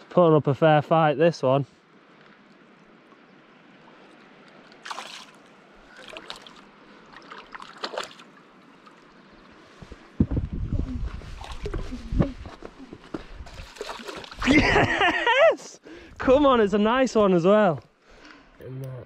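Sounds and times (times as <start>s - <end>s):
faint lapping water: 1.6s - 16.2s
fish splashing at surface: 4.8s - 8.3s, 13.5s - 14.6s.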